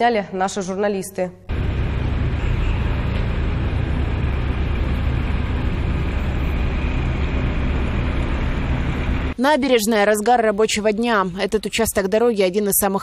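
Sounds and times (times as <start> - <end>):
cars driving past: 1.5 - 9.4.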